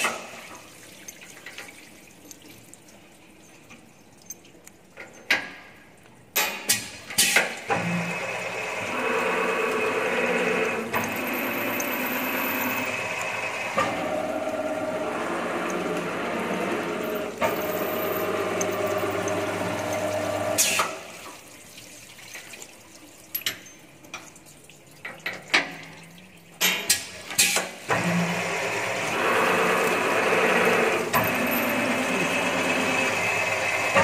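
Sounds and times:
spindle motor humming: 7.7 - 20.6, 27.9 - 34.0
coolant spraying: 24.8 - 34.0.

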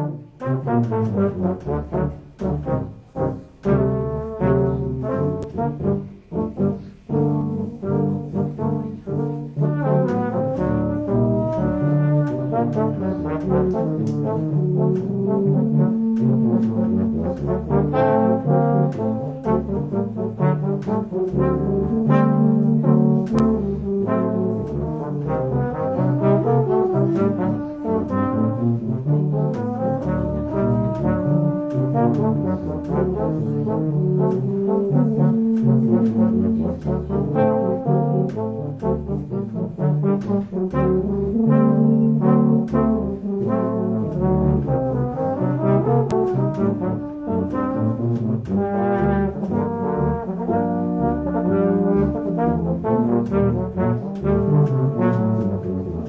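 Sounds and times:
brass music playing chords: 0.0 - 56.0.

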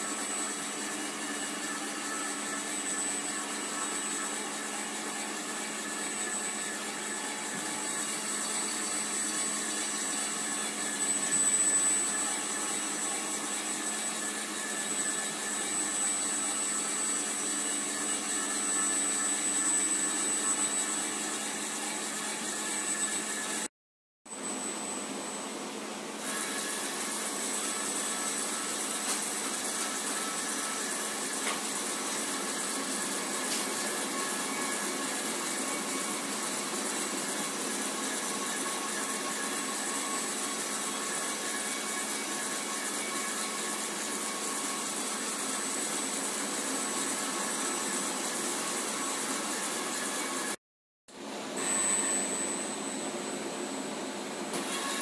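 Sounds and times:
machine whir: 0.0 - 23.7, 26.2 - 55.0
thin high whine: 24.3 - 55.0.

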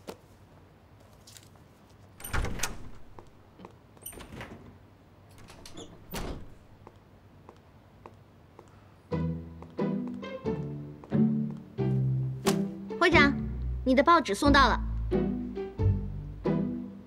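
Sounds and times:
door clicks and knocks: 2.2 - 3.4, 4.0 - 6.8
door squeak: 2.2 - 3.4, 4.0 - 6.8.

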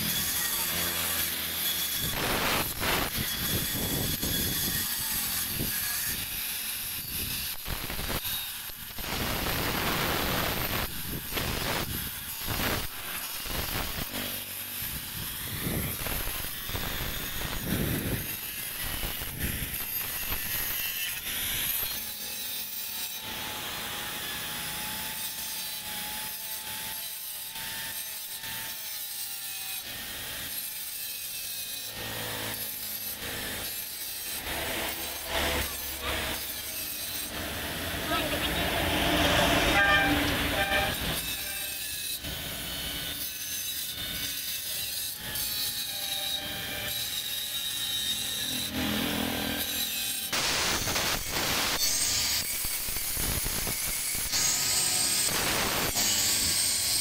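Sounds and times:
angle grinder grinding stone: 0.0 - 57.0
rubbing strokes against stone: 30.7 - 42.6.

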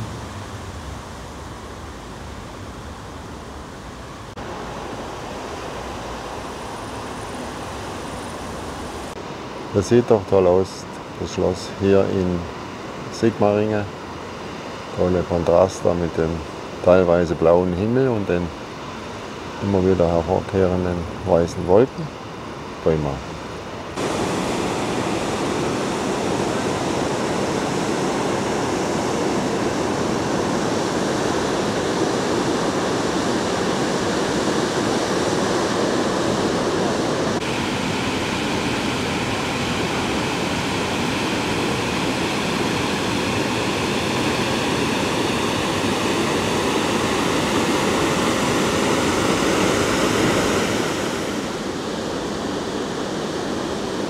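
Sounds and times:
outdoor rushing noise: 0.0 - 9.2.

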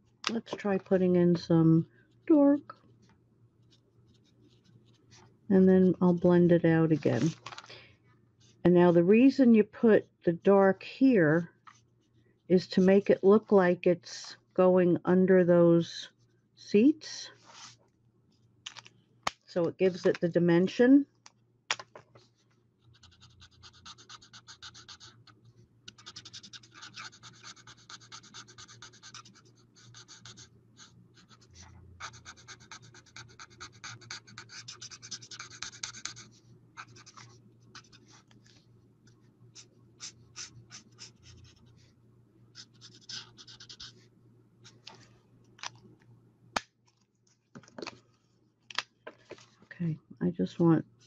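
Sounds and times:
marker scratching on cardstock: 22.9 - 25.2, 25.9 - 38.3, 39.5 - 41.8, 42.6 - 44.0.

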